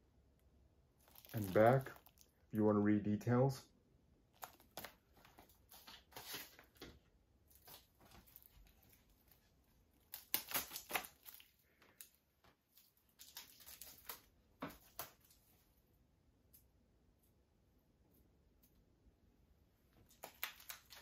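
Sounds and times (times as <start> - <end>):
plastic and cardboard packaging crinkling: 1.0 - 2.4, 4.3 - 15.5, 20.0 - 21.0.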